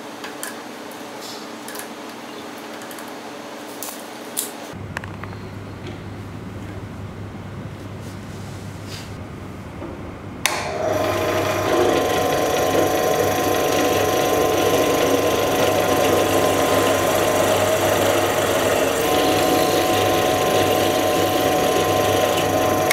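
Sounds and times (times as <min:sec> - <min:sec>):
drill press switch click: 0:10.4 - 0:10.8
drill press motor whine: 0:10.4 - 0:22.9
drill bit drilling metal: 0:10.7 - 0:22.9.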